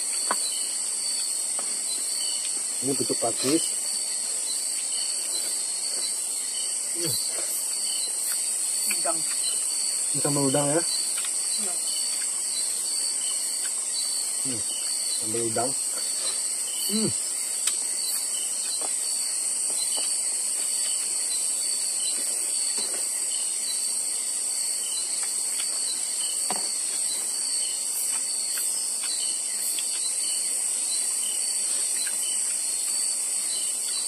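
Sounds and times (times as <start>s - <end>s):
crickets and insects chirring: 0.0s - 34.0s
person humming: 16.9s - 17.2s.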